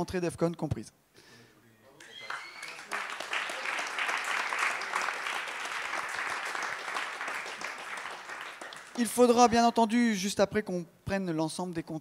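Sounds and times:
audience applause: 2.0 - 9.3.

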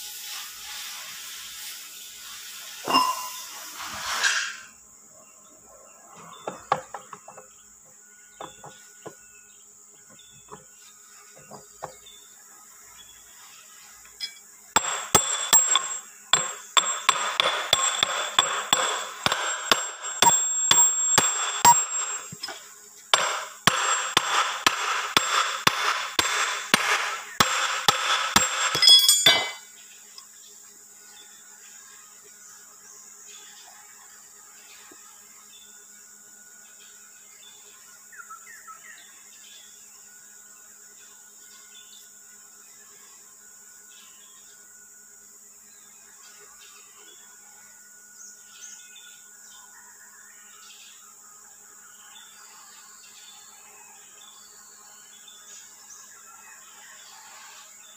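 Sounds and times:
hammer striking metal: 2.9 - 3.5, 14.2 - 29.6
metal parts clinking: 14.2 - 22.6, 27.8 - 29.6.

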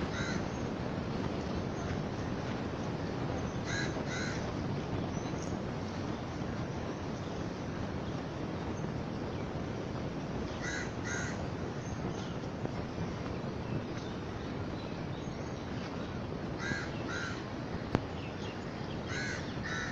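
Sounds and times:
crow cawing: 0.1 - 0.5, 3.7 - 4.4, 10.6 - 11.4, 16.6 - 17.4, 19.1 - 19.9.

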